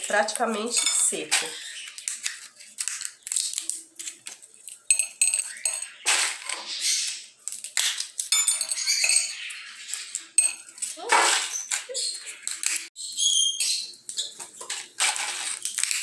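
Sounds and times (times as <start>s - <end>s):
dry pods crackling and snapping: 0.0s - 8.3s, 9.8s - 12.9s, 14.0s - 16.0s
dry pods rustling in glass bowl: 14.2s - 16.0s.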